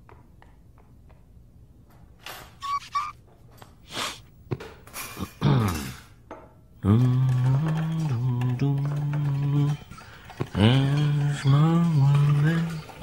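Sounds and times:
cartoon voice squeaky notes: 2.6 - 3.2.

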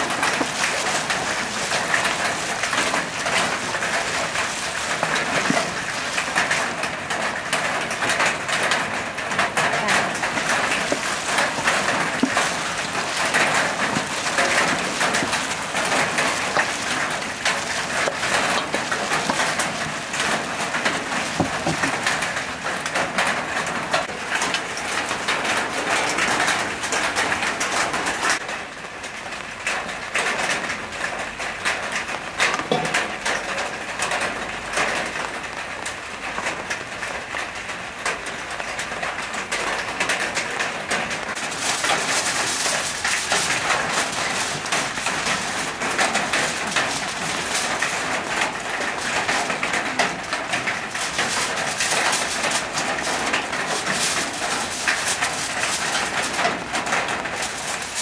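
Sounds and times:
hands squishing meat: 0.0 - 8.8, 10.0 - 23.0
aluminium foil crinkling: 0.0 - 28.4, 38.2 - 58.0.

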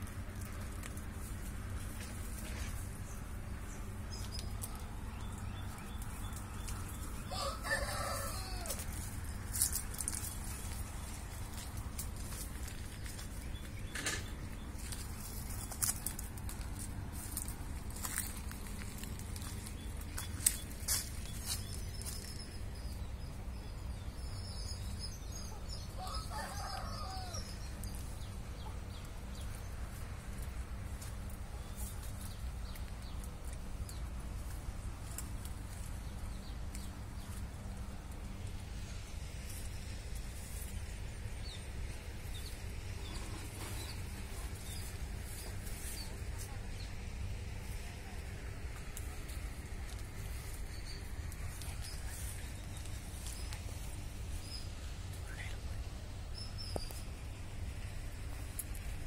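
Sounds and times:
low background hum: 0.0 - 59.0
steady low rumble: 0.0 - 59.0
rooster crowing: 7.2 - 9.0, 26.0 - 27.6.

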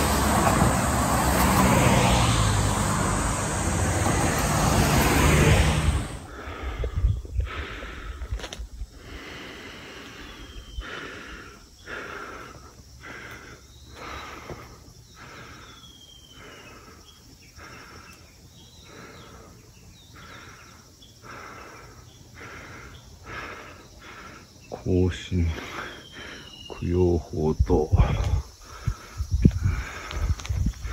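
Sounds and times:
heavy breathing: 5.8 - 26.7, 27.9 - 30.9.

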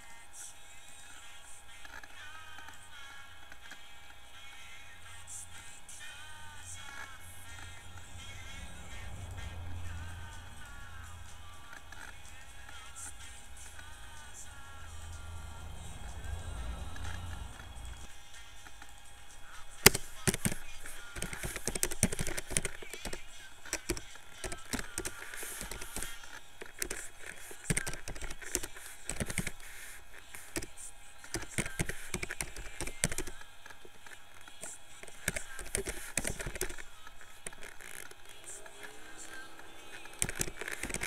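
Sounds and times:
keyboard typing: 18.7 - 41.0.

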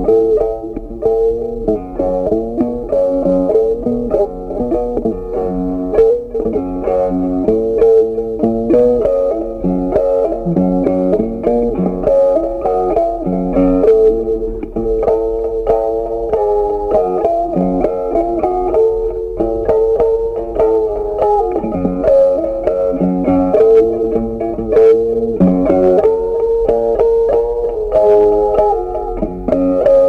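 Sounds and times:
plucked guitar melody: 0.0 - 30.0
bass line: 9.6 - 11.8, 25.4 - 26.0.

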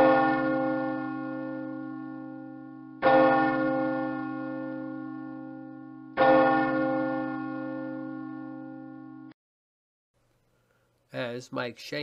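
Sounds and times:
church bell ringing: 0.0 - 9.4.

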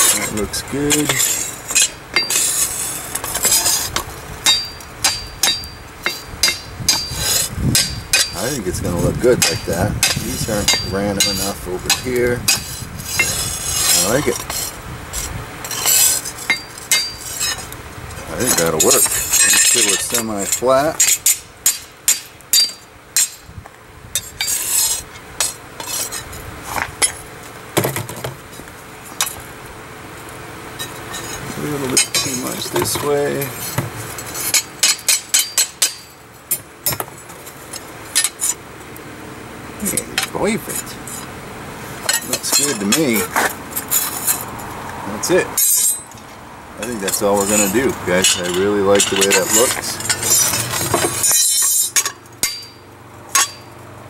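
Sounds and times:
hammer striking steel on anvil: 0.9 - 2.5, 4.4 - 8.4, 9.4 - 14.2, 15.8 - 17.6, 18.5 - 23.4, 34.5 - 36.2, 51.2 - 53.7
high metallic ring: 1.2 - 3.8, 4.4 - 8.4, 15.7 - 17.6, 18.5 - 23.5, 33.4 - 36.6, 45.6 - 46.2, 47.1 - 53.8.

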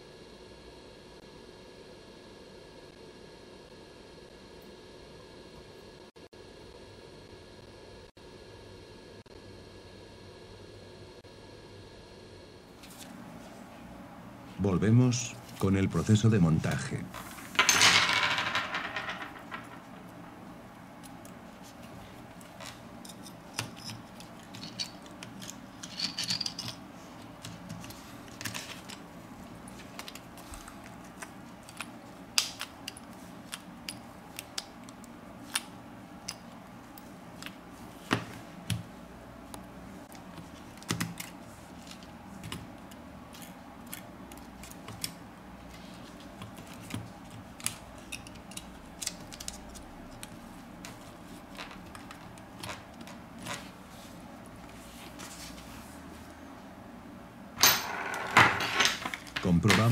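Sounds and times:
faint steady hum: 0.0 - 59.9
small clicks and taps of parts: 46.4 - 51.0.

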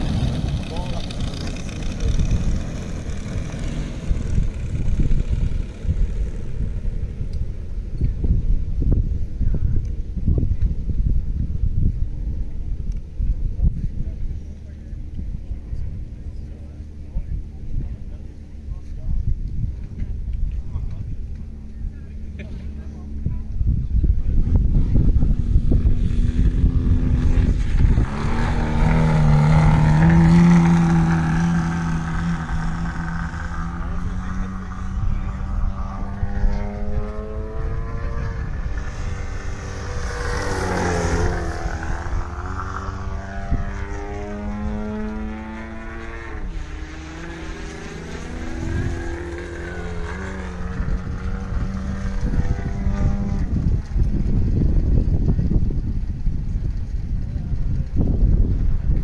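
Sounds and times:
model airplane engine droning: 0.0 - 10.0, 12.0 - 59.0
low rumble: 0.0 - 59.0.

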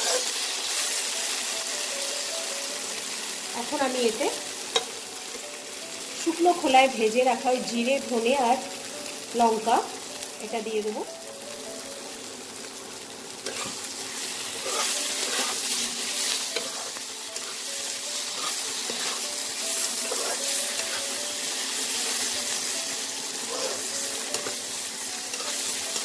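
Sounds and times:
metal spatula scraping a pan: 0.0 - 1.1, 13.4 - 26.0
vegetables sizzling in a pan: 0.0 - 26.0.

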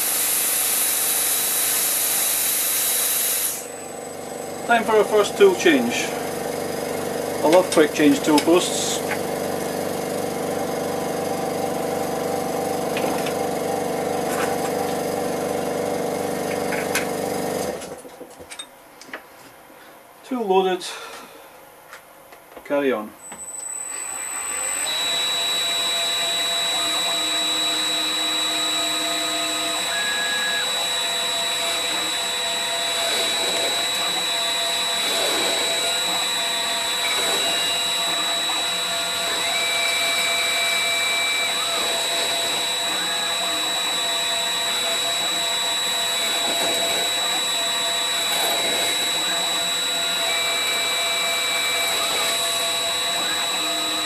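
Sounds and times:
lathe high whine: 0.0 - 18.0, 23.2 - 54.0
short steady tones: 23.2 - 54.0.

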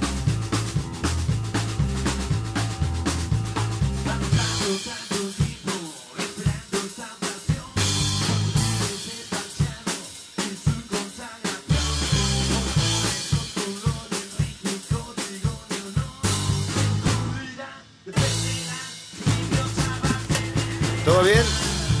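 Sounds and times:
electric bass: 0.0 - 4.7, 7.8 - 9.0, 11.7 - 13.3, 16.2 - 17.5, 18.2 - 22.0
drum kit beat: 0.0 - 22.0.

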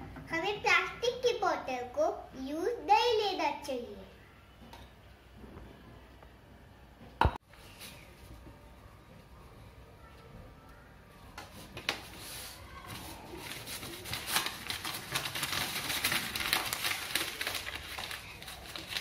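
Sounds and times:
paper rustling and crinkling: 11.4 - 19.0.

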